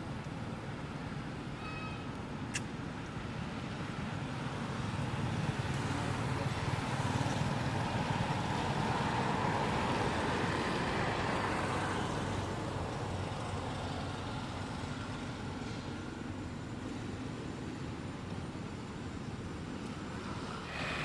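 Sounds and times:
traffic noise: 0:00.0 - 0:21.0
vehicle passing: 0:20.2 - 0:21.0.

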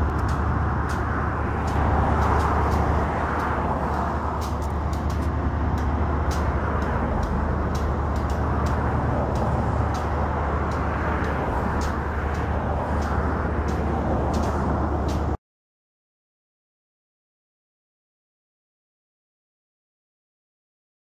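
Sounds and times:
rushing noise: 0:00.0 - 0:15.4
faint clicks: 0:10.7 - 0:15.3.

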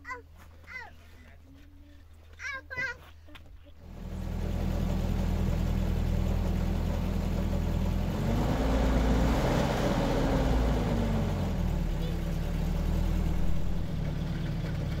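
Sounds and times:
motor vehicle engine running: 0:03.8 - 0:15.0.

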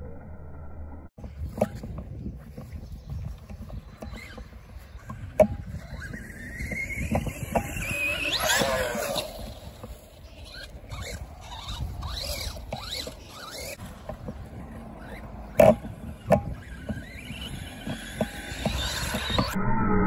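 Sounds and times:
electric motor whining: 0:03.9 - 0:19.6.

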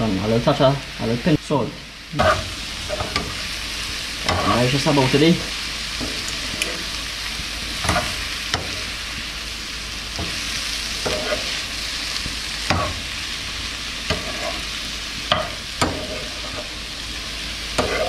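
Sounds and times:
shrimp sizzling in a frying pan: 0:00.0 - 0:18.0
metal spoon clinking and scraping pan: 0:11.0 - 0:11.6, 0:14.1 - 0:14.6, 0:15.3 - 0:16.7, 0:17.8 - 0:18.0.

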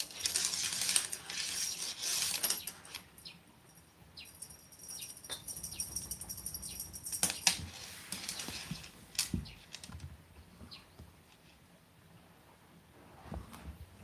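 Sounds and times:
faint high ringing: 0:03.2 - 0:07.2.

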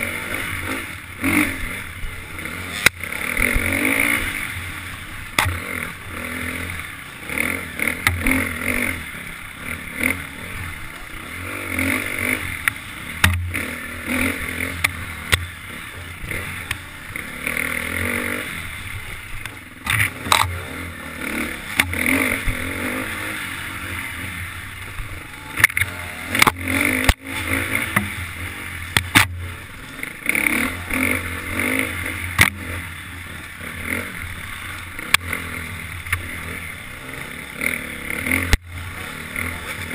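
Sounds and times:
dirt bike engine revving: 0:00.0 - 0:39.9
sharp knocks and clatter: 0:12.6 - 0:13.6, 0:28.9 - 0:29.4, 0:32.4 - 0:32.7.

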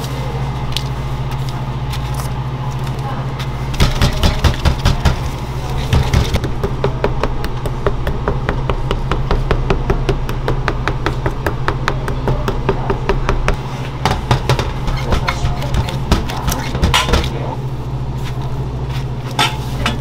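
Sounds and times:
steady low hum: 0:00.0 - 0:20.0
rapid tapping in kitchen: 0:03.8 - 0:17.4.

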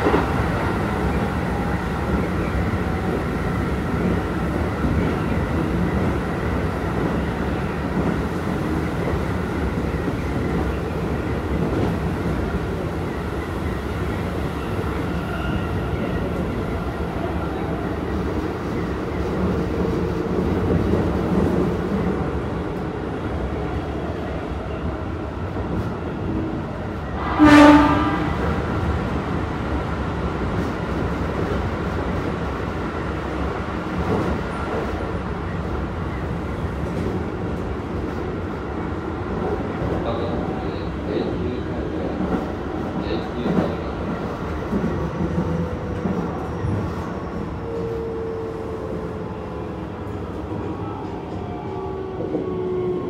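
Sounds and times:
train horn: 0:27.2 - 0:28.6.

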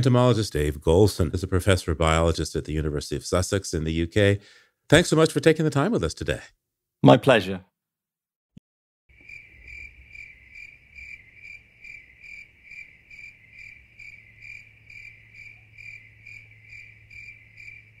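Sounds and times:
cricket chirping: 0:09.1 - 0:18.0.

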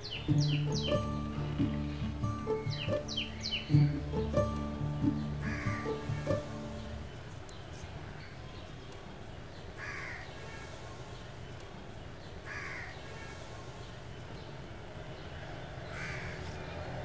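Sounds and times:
low background rumble: 0:00.0 - 0:08.2
crow cawing: 0:05.4 - 0:06.0, 0:09.8 - 0:10.3, 0:12.5 - 0:13.0, 0:15.9 - 0:16.4.

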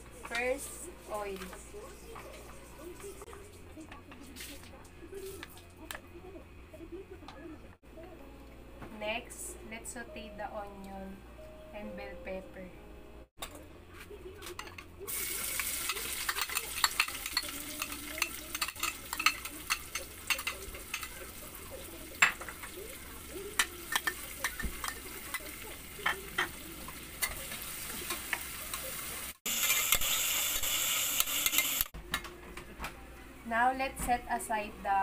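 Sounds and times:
vegetables sizzling in pot: 0:15.0 - 0:32.0.

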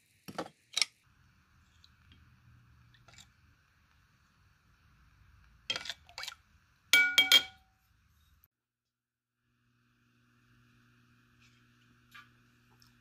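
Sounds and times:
metal spoon clinking on bowl: 0:07.0 - 0:07.6.

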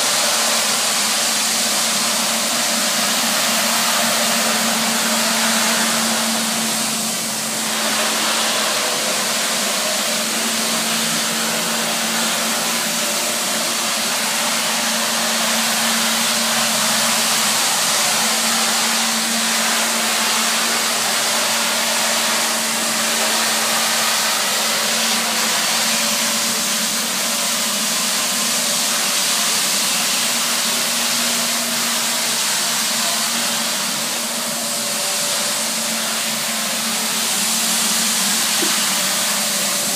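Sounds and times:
floor scrubber running: 0:00.0 - 0:39.9.

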